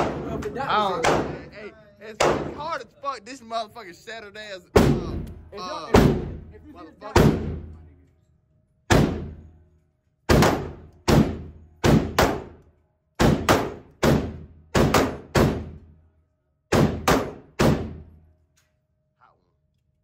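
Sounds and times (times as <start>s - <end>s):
gunshots echoing indoors: 0.0s - 1.5s, 2.2s - 2.8s, 4.8s - 6.5s, 7.1s - 7.8s, 8.9s - 18.2s.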